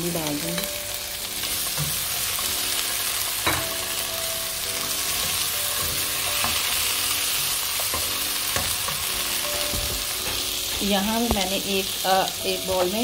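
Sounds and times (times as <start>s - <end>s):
vegetables sizzling in pan: 0.0s - 13.0s
spatula scraping and tapping pan: 5.1s - 11.7s.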